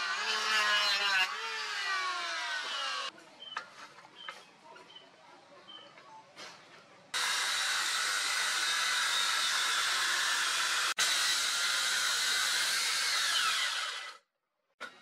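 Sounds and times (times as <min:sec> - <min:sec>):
circular saw cutting wood: 0:00.0 - 0:03.1, 0:07.2 - 0:14.2.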